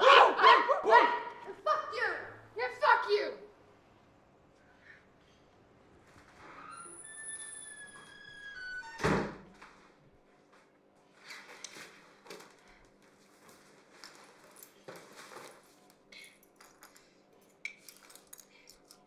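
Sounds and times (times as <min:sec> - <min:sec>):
small objects clicking and clinking: 0:16.1 - 0:19.0.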